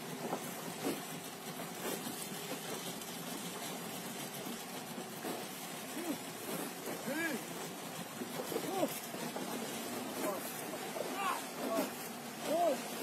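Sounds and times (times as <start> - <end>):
river water rushing: 0.1 - 13.0.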